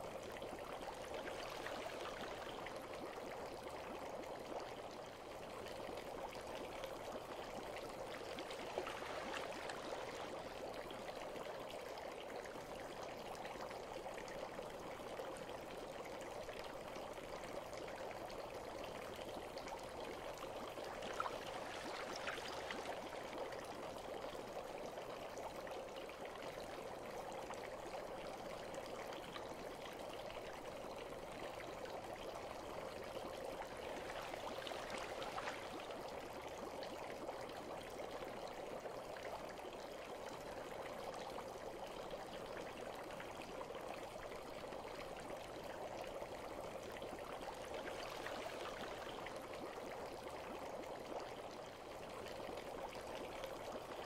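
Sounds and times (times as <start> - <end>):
water running and trickling: 0.1 - 25.1, 26.4 - 40.8.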